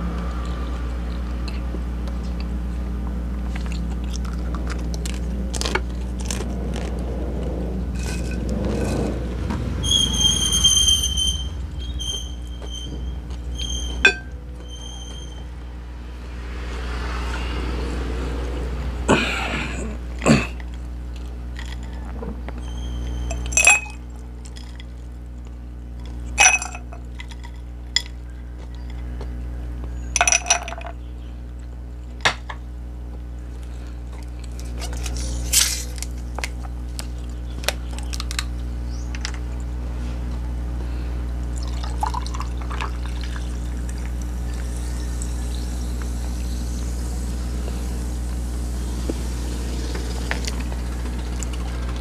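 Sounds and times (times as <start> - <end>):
steady low hum: 0.0 - 52.0
ice cubes clinking in glass: 23.3 - 24.8, 26.4 - 28.1, 30.2 - 31.0
drink pouring over ice: 41.6 - 44.6.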